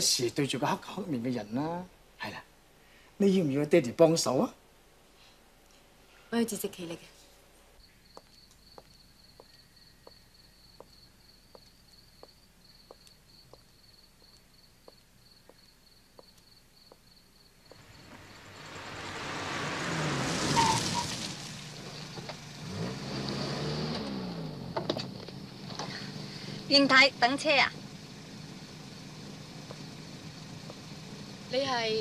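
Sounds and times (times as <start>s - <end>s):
high insect chirping: 7.8s - 22.6s, 25.2s - 32.0s
footsteps on a road: 8.1s - 18.0s, 29.5s - 31.0s
car engine running: 17.7s - 32.0s.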